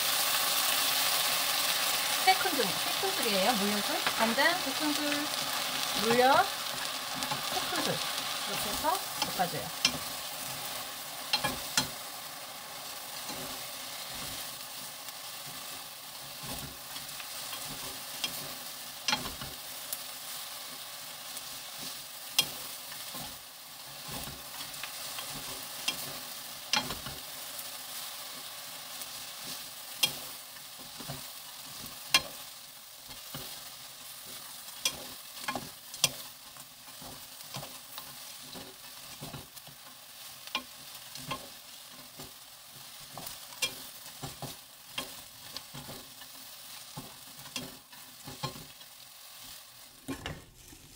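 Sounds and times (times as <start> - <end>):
pepper chips sizzling in a pan: 0.0 - 50.9
spatulas clicking against pan: 6.8 - 10.2, 11.3 - 12.0, 16.5 - 19.6, 22.3 - 23.2, 24.1 - 27.2, 29.9 - 30.4, 32.1 - 32.4, 34.8 - 36.3, 40.4 - 41.6, 43.1 - 46.3, 47.0 - 48.7.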